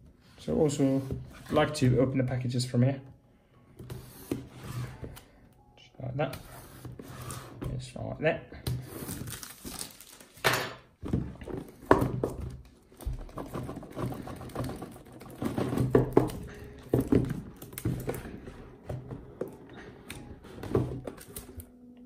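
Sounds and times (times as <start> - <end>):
plastic film crinkling: 9.0 - 10.5.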